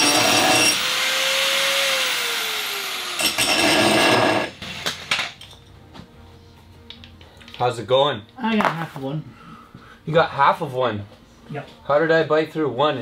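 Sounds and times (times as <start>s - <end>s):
angle grinder cutting metal: 0.0s - 4.7s.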